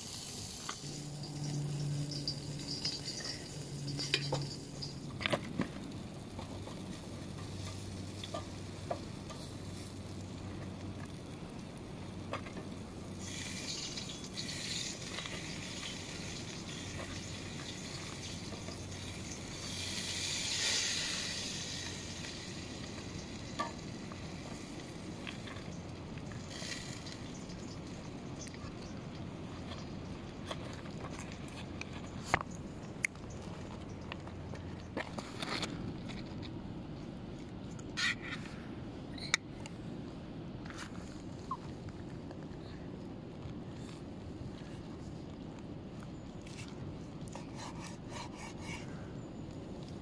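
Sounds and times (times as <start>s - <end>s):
meat sizzling on grill: 0.0s - 2.5s, 6.1s - 10.6s, 13.0s - 28.2s
low fan hum: 0.0s - 50.0s.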